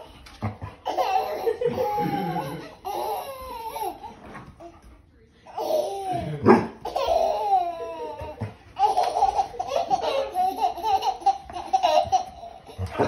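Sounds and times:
baby laughing hysterically: 0:00.8 - 0:04.1, 0:06.8 - 0:13.0.

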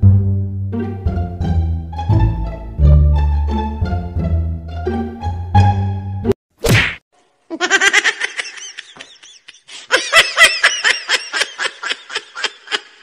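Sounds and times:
high-pitched giggling: 0:07.5 - 0:13.0.

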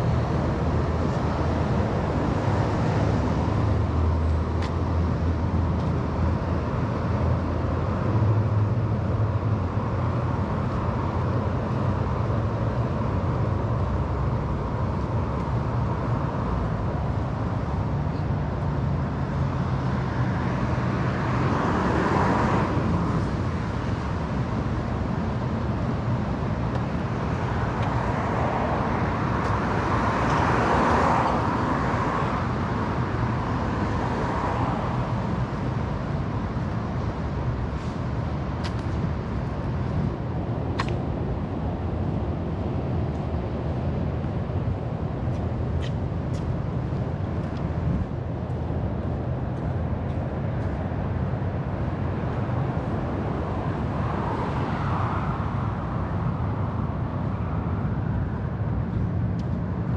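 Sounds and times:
car engines and tyre noise: 0:00.0 - 0:59.9
vehicles passing: 0:00.0 - 0:59.9.

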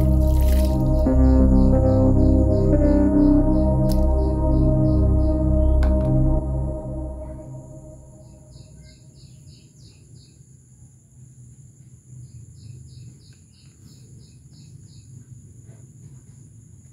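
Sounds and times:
low steady hum: 0:00.0 - 0:08.8.

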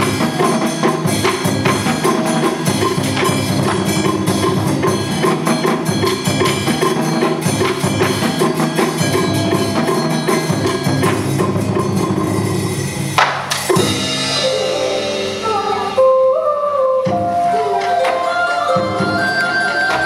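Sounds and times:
fast drum and wood-block percussion: 0:00.0 - 0:16.0, 0:17.1 - 0:20.0
melodic instrument playing tune: 0:00.0 - 0:20.0
loud single percussion strike: 0:13.2 - 0:14.6.

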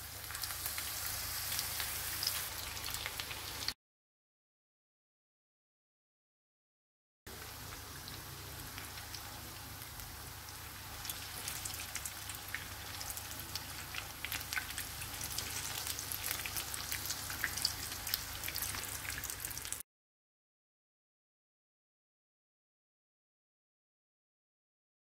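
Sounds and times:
fritters sizzling in hot oil: 0:00.0 - 0:03.8, 0:07.3 - 0:19.8.

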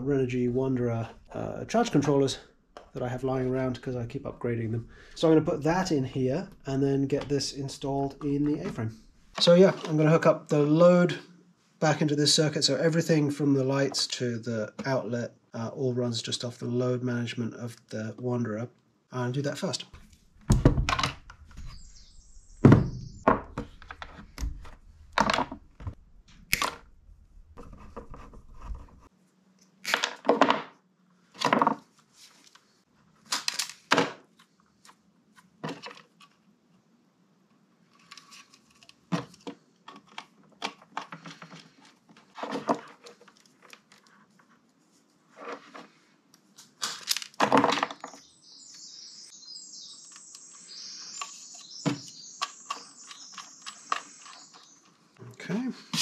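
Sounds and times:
wire crimper snapping shut: 0:26.4 - 0:26.9.

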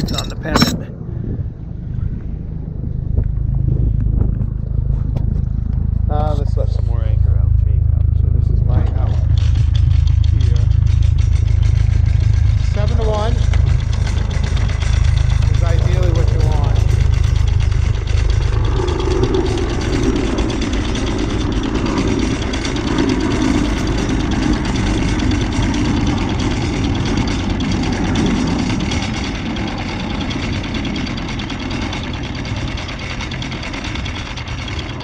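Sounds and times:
anchor windlass paying out chain: 0:00.0 - 0:00.9, 0:09.2 - 0:35.0
constant low rumble: 0:00.0 - 0:35.0.

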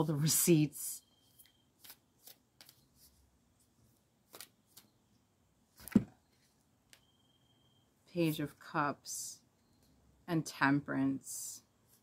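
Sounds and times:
cards flicking and rustling: 0:01.4 - 0:03.2, 0:04.2 - 0:04.9.

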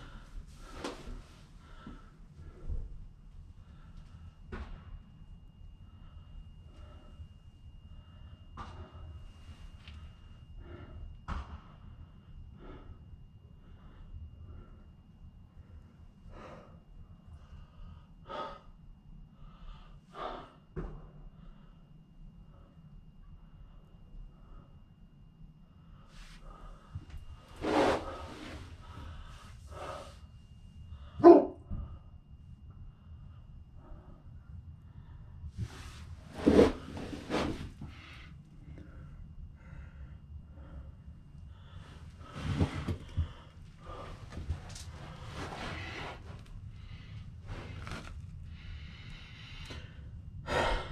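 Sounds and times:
faint high whine: 0:00.0 - 0:50.9
person breathing heavily: 0:16.2 - 0:18.8, 0:19.4 - 0:21.8, 0:26.0 - 0:32.2, 0:33.8 - 0:50.9.

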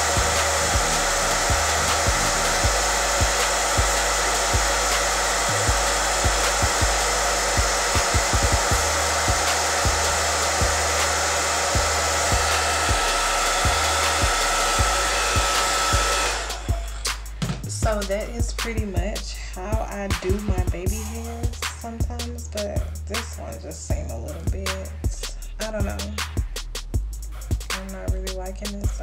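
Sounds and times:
hair dryer blowing: 0:00.0 - 0:21.6.

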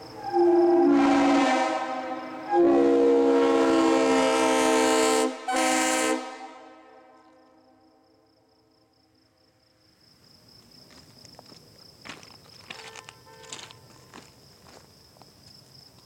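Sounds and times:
locomotive air horn: 0:00.0 - 0:07.9, 0:12.8 - 0:14.0.

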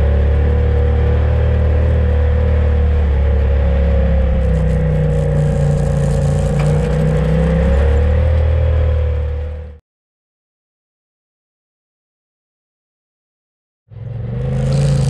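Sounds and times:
utility vehicle engine rumbling: 0:00.0 - 0:09.8, 0:13.9 - 0:15.0.

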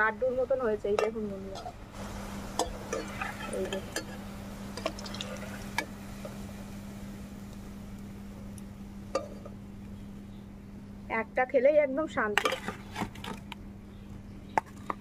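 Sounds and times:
steady low hum: 0:00.0 - 0:15.0
oil sizzling: 0:00.6 - 0:10.3
metal spoon scraping pan: 0:12.4 - 0:13.4.

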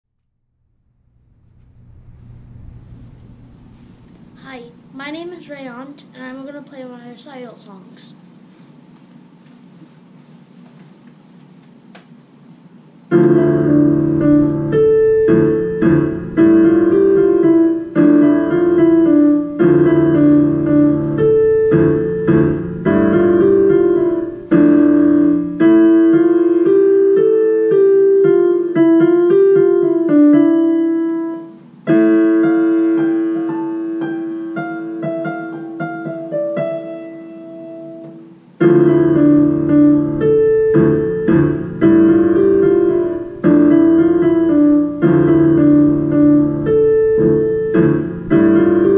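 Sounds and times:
electronic keyboard piano piece: 0:13.1 - 0:48.9.

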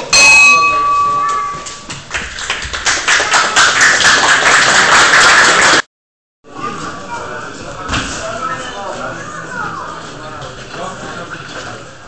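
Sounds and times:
boxing ring bell ringing: 0:00.0 - 0:01.9
crowd clapping and applauding: 0:01.5 - 0:05.9.

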